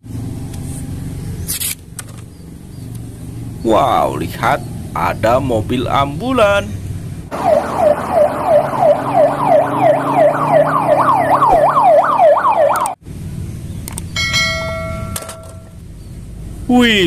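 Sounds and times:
ambulance siren yelping: 7.3s - 13.0s.

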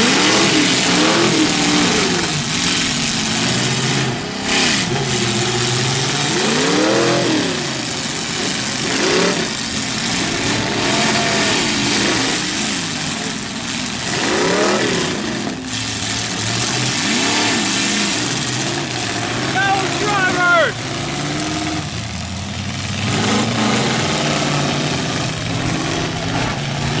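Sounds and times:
car engines revving: 0.0s - 27.0s.

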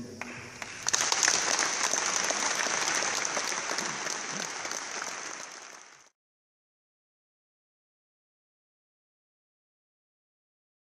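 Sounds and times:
audience applauding: 0.2s - 6.2s.

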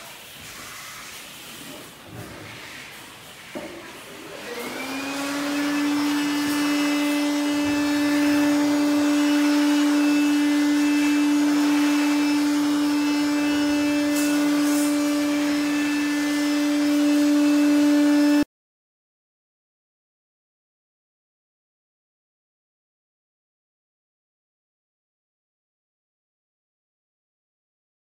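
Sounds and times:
machine motor humming: 4.3s - 18.4s.

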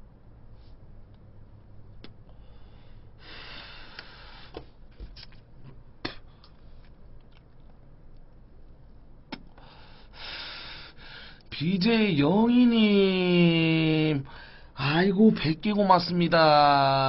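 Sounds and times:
small clicks and mouth noises: 1.9s - 2.4s, 3.9s - 9.7s.

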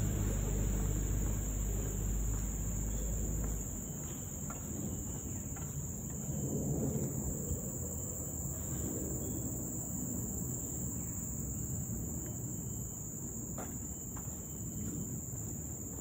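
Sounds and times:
low rumble: 0.0s - 5.5s
insects droning: 0.0s - 16.0s.

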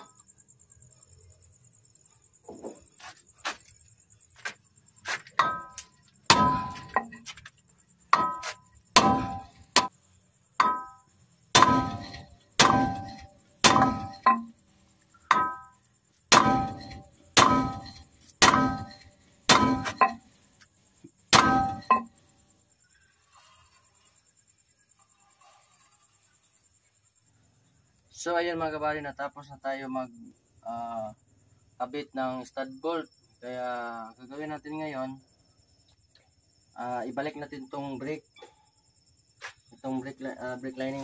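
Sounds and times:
hammer striking metal: 5.4s - 7.3s, 8.1s - 9.9s, 10.6s - 14.5s, 15.3s - 15.7s, 16.3s - 20.2s, 21.3s - 22.1s.

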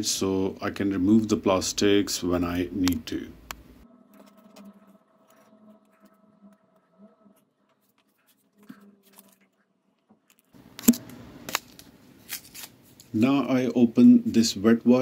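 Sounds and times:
foil sachet crackling: 11.4s - 13.1s.

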